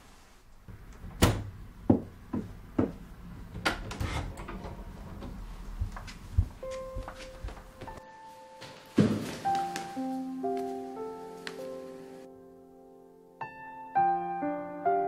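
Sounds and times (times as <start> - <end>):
door thuds and knocks: 1.0 - 3.9.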